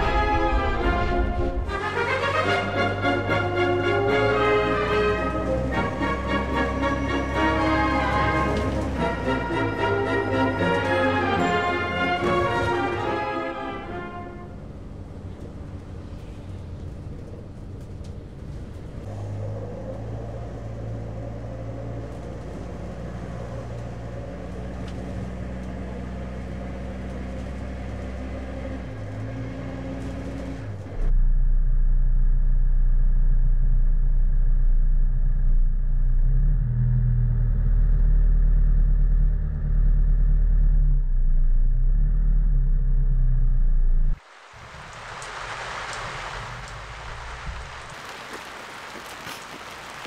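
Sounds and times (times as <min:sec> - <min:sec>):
orchestral background music: 0:00.0 - 0:15.0
road and engine rumble in car: 0:14.6 - 0:44.4.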